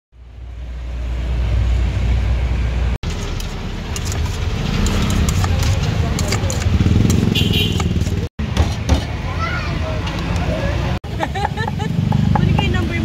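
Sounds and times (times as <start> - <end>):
low rumble of street traffic: 0.1 - 13.0
metal spoon scraping steel bowl: 3.1 - 8.2.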